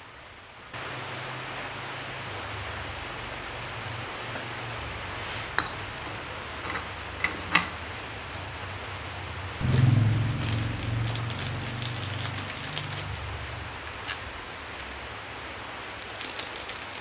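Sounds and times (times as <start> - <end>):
steady hiss: 0.0 - 17.0
low hum: 8.6 - 14.7.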